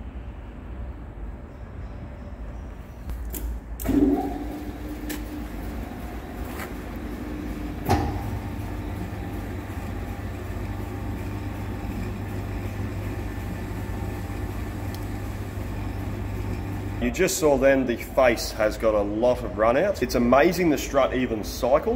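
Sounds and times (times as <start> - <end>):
lathe spindle clunk: 3.8 - 17.0
lathe running low hum: 3.8 - 21.9.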